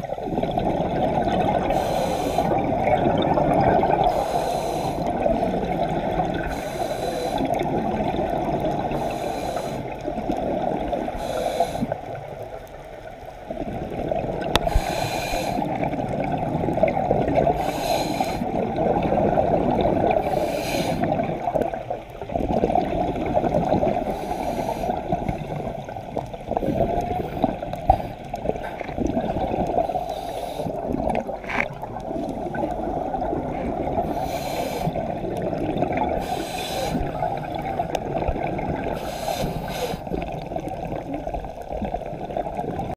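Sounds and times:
exhaled bubbles rushing: 0.0s - 4.2s, 5.0s - 6.5s, 7.4s - 9.1s, 9.9s - 11.2s, 13.4s - 14.9s, 15.6s - 24.3s, 24.9s - 42.9s
regulator hissing inhalations: 1.6s - 2.6s, 4.1s - 5.1s, 6.4s - 7.6s, 8.9s - 10.0s, 11.1s - 12.1s, 14.6s - 15.8s, 17.6s - 18.6s, 20.2s - 21.2s, 24.0s - 25.2s, 29.8s - 30.9s, 34.0s - 35.1s, 36.2s - 37.6s, 39.0s - 40.2s.

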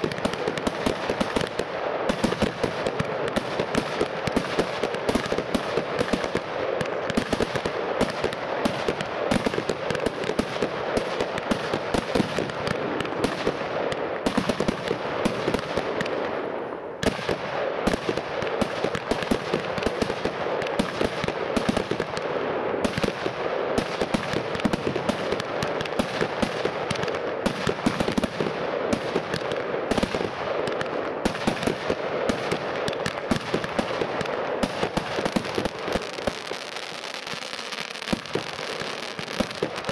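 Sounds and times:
fireworks crackling: 0.0s - 39.9s
fireworks launches and bursts: 0.0s - 39.9s.

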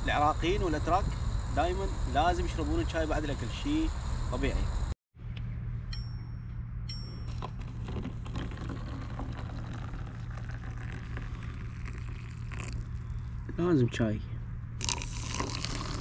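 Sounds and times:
steady low hum: 0.0s - 16.0s
short high ringing tones: 5.8s - 7.6s
tea pouring into cups: 7.6s - 13.4s, 14.8s - 16.0s.

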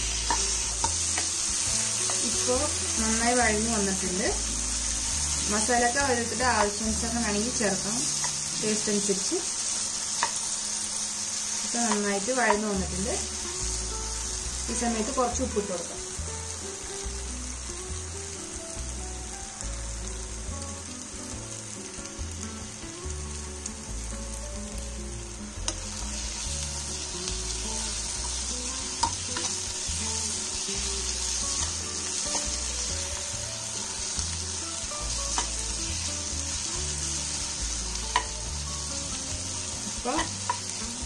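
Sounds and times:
masala sizzling in a frying pan: 0.0s - 41.0s
spoon clicking against pan: 38.1s - 38.4s.

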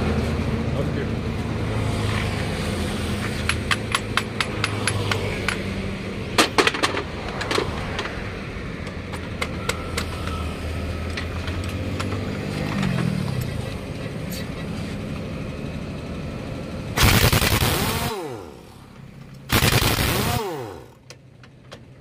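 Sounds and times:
low engine hum: 0.0s - 19.5s
impact wrench metallic knocks: 3.2s - 5.7s.

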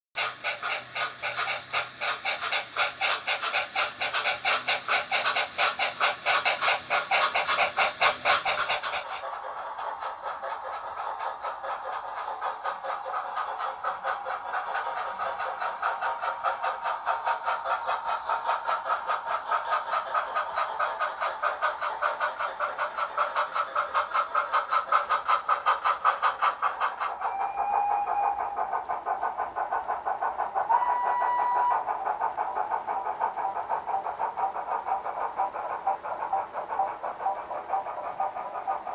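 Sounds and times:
model steam locomotive chuffing: 0.2s - 38.9s
wheel clatter on track: 0.2s - 38.9s
short whistle tones: 30.8s - 31.8s.

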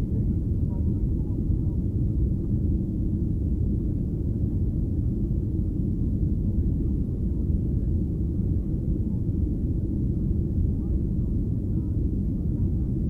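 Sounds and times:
airplane cabin engine rumble: 0.0s - 13.0s.

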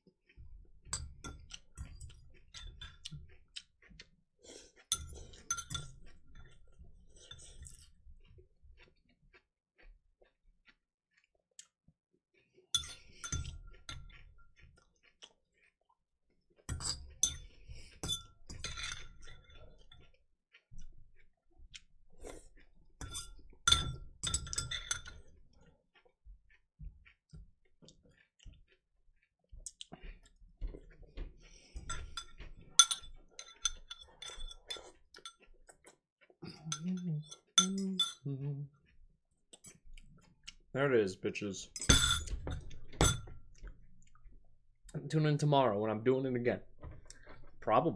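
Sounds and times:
fork scraping ceramic bowl: 4.8s - 8.0s, 12.7s - 14.9s, 16.6s - 21.2s, 21.8s - 25.6s, 30.0s - 35.8s, 36.5s - 38.2s.

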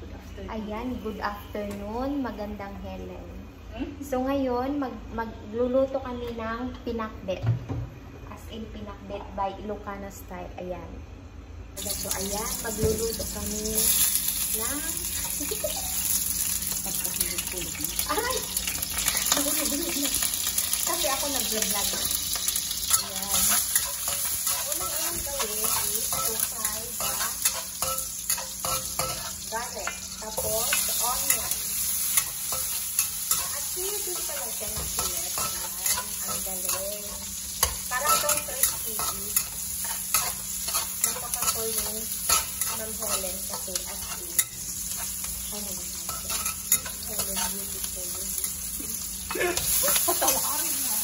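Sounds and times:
garlic and onions sizzling in oil: 11.8s - 51.0s
metal spatula scraping a wok: 22.3s - 45.4s, 46.0s - 47.9s.

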